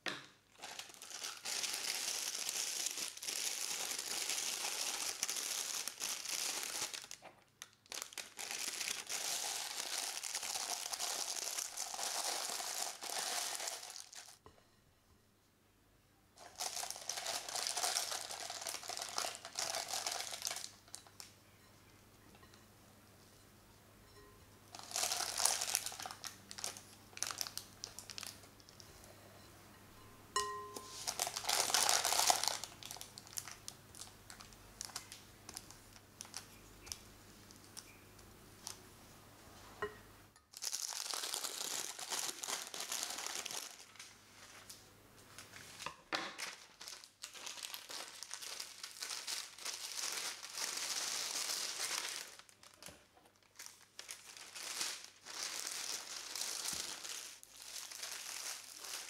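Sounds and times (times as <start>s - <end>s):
baking paper crinkling: 0.5s - 14.4s, 16.4s - 21.3s, 24.7s - 28.8s, 30.8s - 38.0s, 40.6s - 59.0s
plastic piping bag crinkling: 0.5s - 14.4s, 16.4s - 21.4s, 24.7s - 28.8s, 30.8s - 38.8s, 40.5s - 59.0s.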